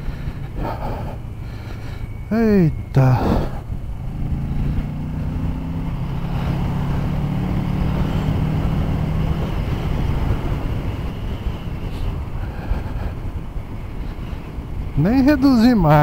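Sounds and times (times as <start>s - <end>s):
motorcycle engine: 0.0s - 16.0s
wind and road noise: 0.0s - 16.0s.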